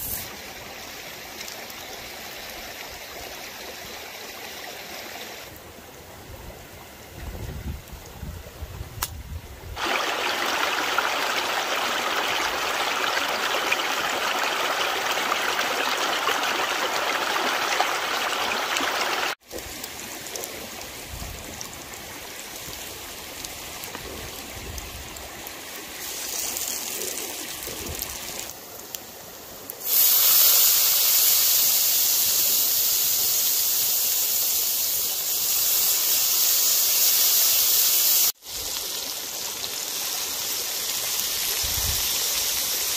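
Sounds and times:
food sizzling in a skillet: 0.0s - 0.3s, 25.9s - 28.5s, 29.8s - 42.9s
quieter running water: 0.0s - 42.9s
stream rushing over rocks: 9.8s - 30.0s.

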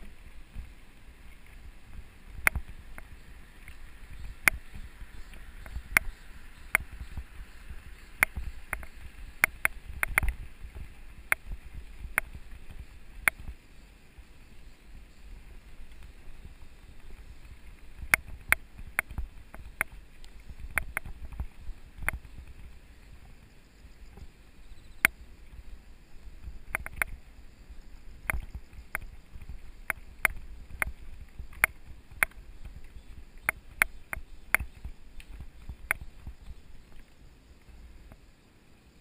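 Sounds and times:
bike clicks and rattles: 0.0s - 13.6s, 15.8s - 23.4s, 26.4s - 27.2s.

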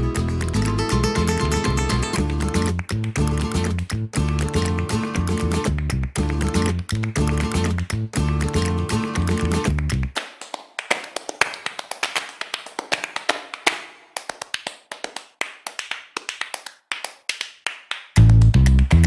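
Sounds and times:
guitar-led band music: 0.0s - 10.1s
percussive taps and claps: 0.0s - 19.0s.

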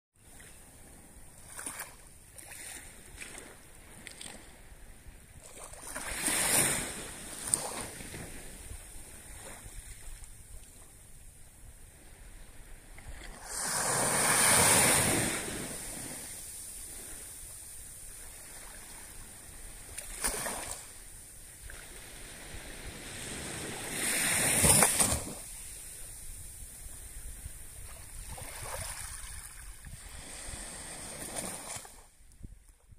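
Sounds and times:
small waves washing onto beach: 0.2s - 11.2s, 11.8s - 32.3s.

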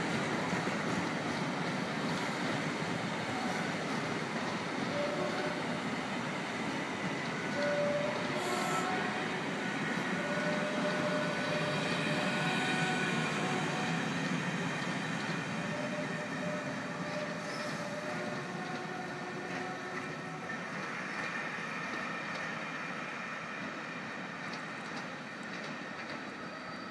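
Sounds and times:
train wheels rumbling on track: 0.0s - 26.9s.

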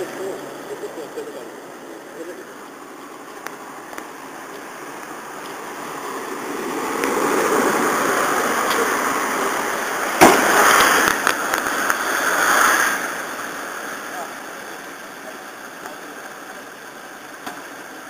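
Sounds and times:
car engine running: 0.0s - 12.1s, 13.0s - 18.0s
exhaust crackles: 0.0s - 18.0s
sharp bang: 10.2s - 11.2s.

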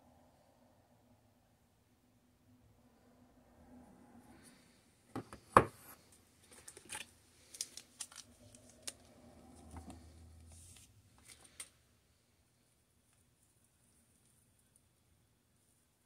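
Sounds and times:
cable rustling: 6.4s - 11.8s.

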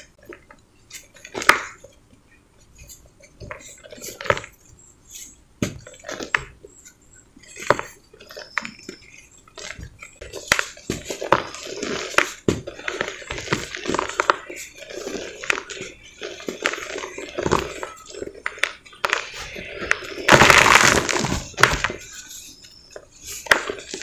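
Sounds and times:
cement balls crumbling in hands: 0.0s - 1.9s, 7.4s - 24.0s.

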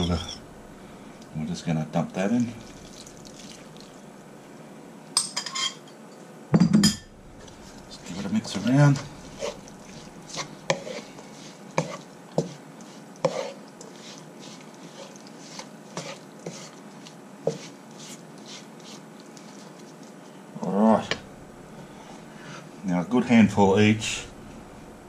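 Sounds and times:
wooden spoon scraping a pan: 7.4s - 20.3s.

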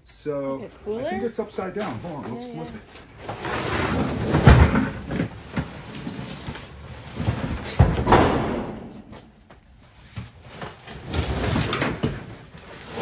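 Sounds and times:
box scraping thud: 3.2s - 9.4s
box knocking and rustling: 4.1s - 9.4s.

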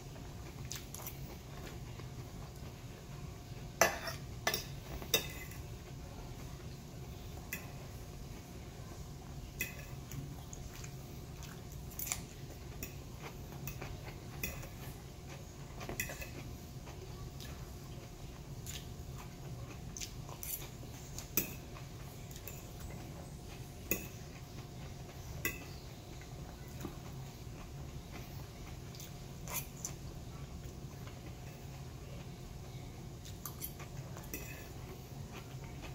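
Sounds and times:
steady low hum: 0.0s - 35.9s
crunchy chewing: 0.4s - 2.7s, 9.9s - 32.6s
fork clinking on a plate: 3.8s - 5.6s, 25.4s - 25.8s.

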